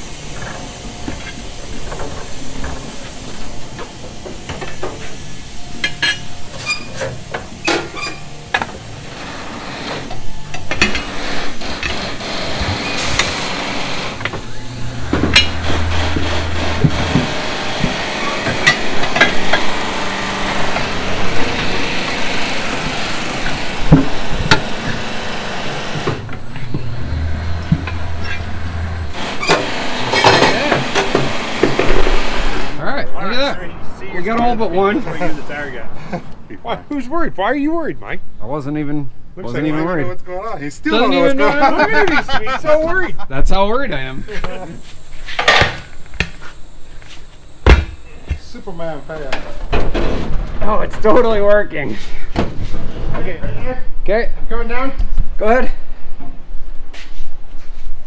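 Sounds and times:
turntable motor running: 0:08.5 - 0:32.8
metal and rubber clanks: 0:14.1 - 0:19.8.

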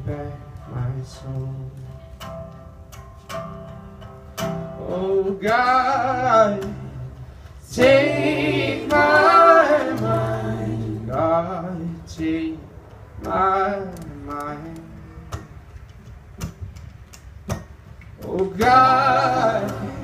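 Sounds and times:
acoustic guitar: 0:00.0 - 0:20.0
resonator guitar: 0:00.0 - 0:20.0
man singing long notes: 0:18.2 - 0:20.0.

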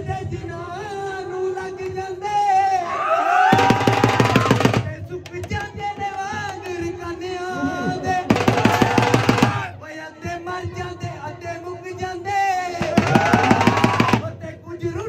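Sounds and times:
man singing into a microphone: 0:00.0 - 0:03.1, 0:04.7 - 0:15.0
rapid drumbeats: 0:03.5 - 0:15.0.

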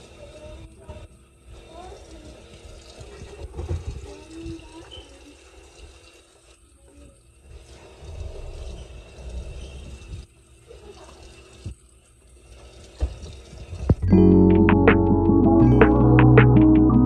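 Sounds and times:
music: 0:14.0 - 0:17.0.

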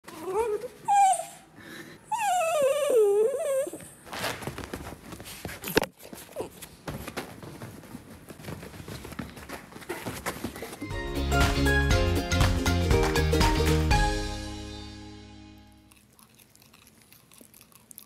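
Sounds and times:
dog whining: 0:00.1 - 0:04.0
dog moving on cushion: 0:04.0 - 0:10.9.

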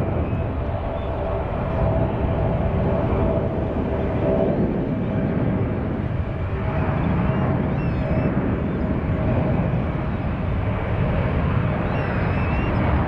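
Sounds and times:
jet engines deep rumble: 0:00.0 - 0:13.0.

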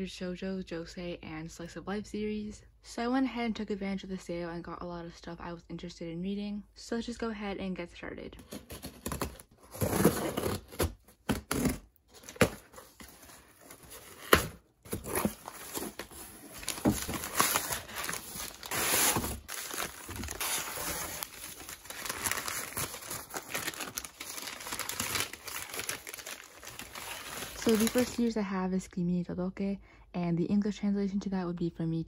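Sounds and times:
packing paper crinkling and tearing: 0:08.5 - 0:28.3.

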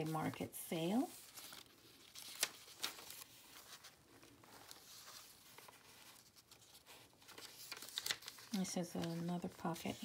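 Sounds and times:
paper pages rustling: 0:00.0 - 0:10.0.

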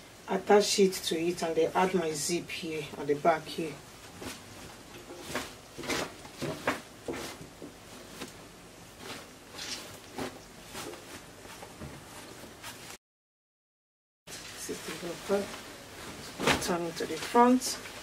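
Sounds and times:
fabric rustling: 0:03.4 - 0:13.0, 0:14.3 - 0:18.0.

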